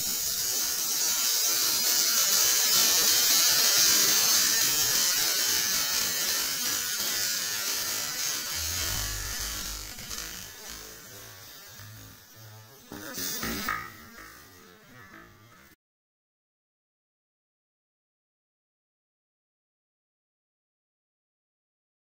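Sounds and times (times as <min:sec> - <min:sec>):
spark fountain hissing: 0:00.0 - 0:15.8.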